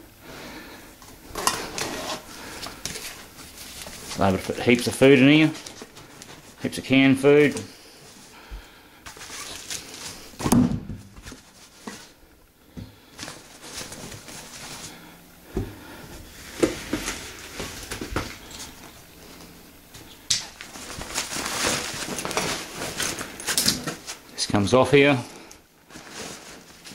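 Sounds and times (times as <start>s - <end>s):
nylon fabric rustling: 1.6s - 10.4s, 13.0s - 15.2s, 15.9s - 24.6s, 25.8s - 26.9s.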